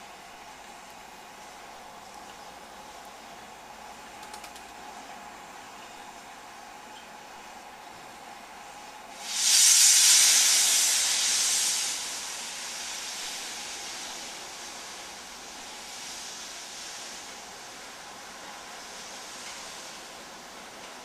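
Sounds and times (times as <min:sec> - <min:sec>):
steam locomotive hissing steam: 0:05.2 - 0:21.0.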